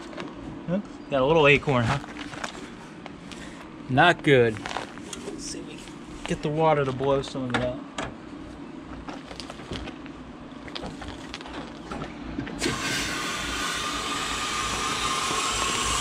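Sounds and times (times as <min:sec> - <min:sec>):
hose water rushing: 0:12.6 - 0:16.0.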